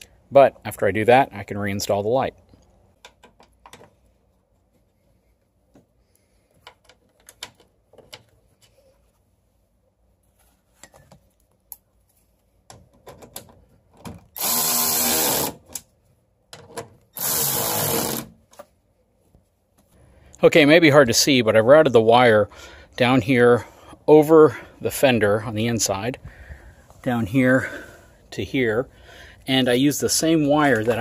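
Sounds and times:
small clicks and knocks: 0:02.6 - 0:04.0, 0:06.5 - 0:08.8
power drill driving screws: 0:14.4 - 0:15.6, 0:17.2 - 0:18.3.

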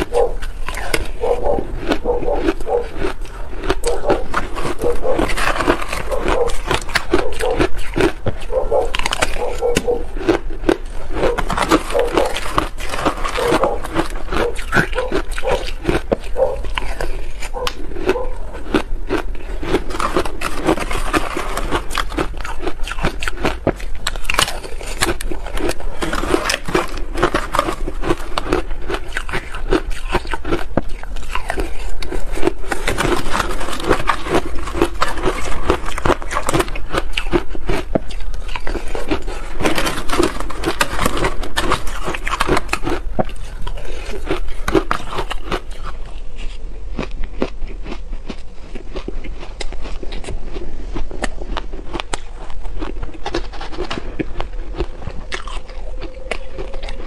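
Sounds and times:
spoon scraping shaved ice: 0:00.0 - 0:45.6.

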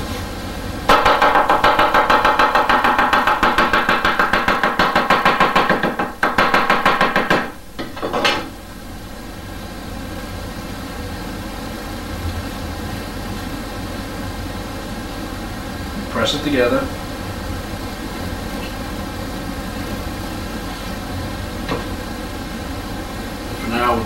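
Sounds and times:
knife chopping on wooden board: 0:00.9 - 0:08.5.

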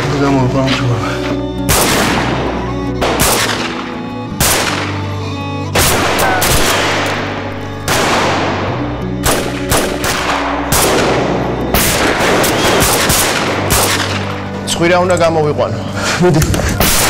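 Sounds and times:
low music score: 0:00.0 - 0:17.0
pistol shots echoing: 0:01.7 - 0:05.2, 0:05.8 - 0:14.5.

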